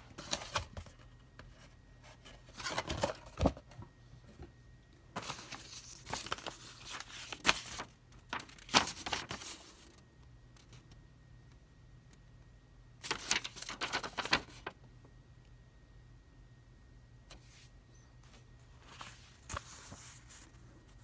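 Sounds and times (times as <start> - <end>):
paper packaging rustling: 0.1 - 1.1, 2.2 - 3.6, 5.1 - 10.0, 13.0 - 14.7, 18.7 - 21.0.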